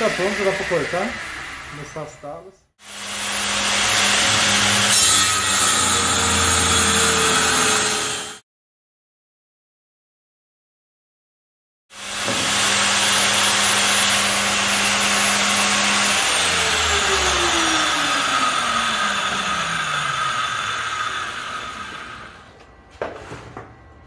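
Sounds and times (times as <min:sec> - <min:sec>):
circular saw cutting: 0:00.0 - 0:08.4, 0:11.9 - 0:22.7.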